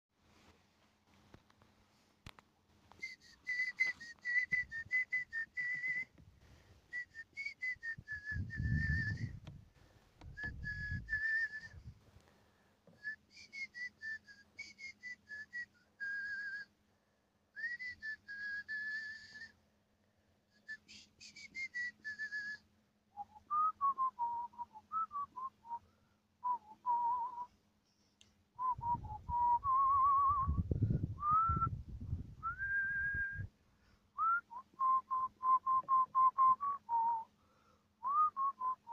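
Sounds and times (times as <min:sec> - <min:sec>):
person whistling a tune: 0:03.0 - 0:06.2, 0:06.9 - 0:09.4, 0:10.3 - 0:11.9, 0:13.0 - 0:16.7, 0:17.6 - 0:19.6, 0:20.6 - 0:22.6, 0:23.2 - 0:25.8, 0:26.4 - 0:27.5, 0:28.6 - 0:31.8, 0:32.4 - 0:33.5, 0:34.2 - 0:37.3, 0:38.0 - 0:38.9
low rumbling: 0:08.0 - 0:12.0, 0:28.6 - 0:33.5.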